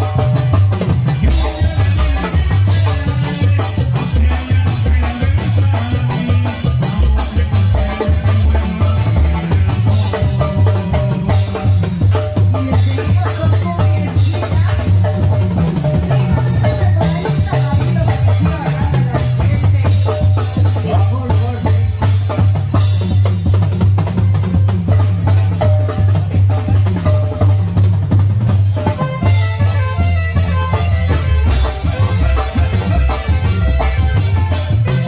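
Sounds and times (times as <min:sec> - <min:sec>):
deep bass drum: 0:00.0 - 0:35.0
drum kit beat: 0:00.0 - 0:35.0
keyboard: 0:00.0 - 0:35.0
saxophone: 0:28.8 - 0:35.0.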